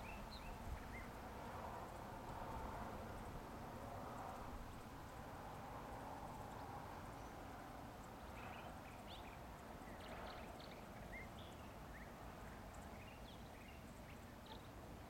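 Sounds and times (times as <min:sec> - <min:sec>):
small birds chirping: 0:08.0 - 0:14.8.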